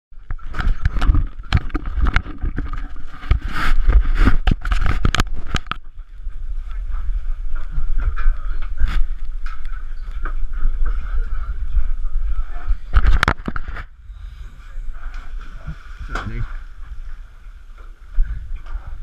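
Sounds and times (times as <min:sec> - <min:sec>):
boat engine rumble: 0:00.2 - 0:19.0
knocks and scrapes of camera: 0:00.3 - 0:05.8, 0:12.9 - 0:13.9.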